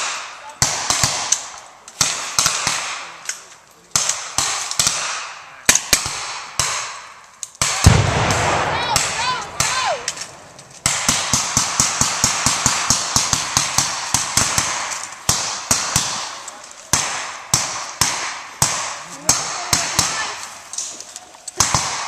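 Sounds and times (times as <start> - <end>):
rapid gunfire: 0.0 - 3.1, 7.6 - 10.2, 10.8 - 20.3, 21.6 - 22.0
rifle shots: 0.0 - 3.2, 3.9 - 20.4, 21.6 - 22.0
loud blast with deep rumble: 7.9 - 9.7.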